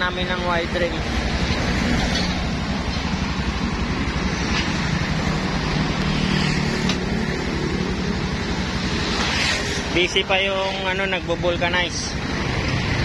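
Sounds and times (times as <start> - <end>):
engine idling: 0.0 - 9.1.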